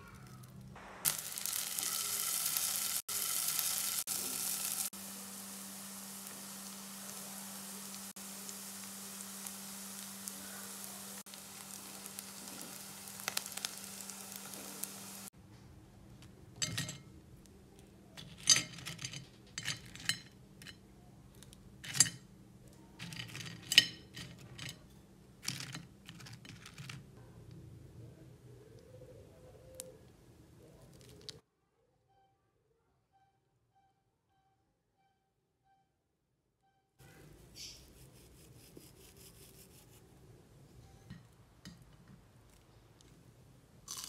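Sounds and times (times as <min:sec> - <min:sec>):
fries sizzling in oil: 0:00.8 - 0:15.3.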